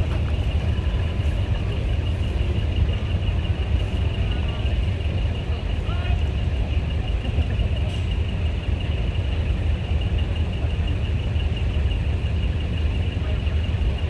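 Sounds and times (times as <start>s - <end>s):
truck engine idling: 0.0s - 14.0s.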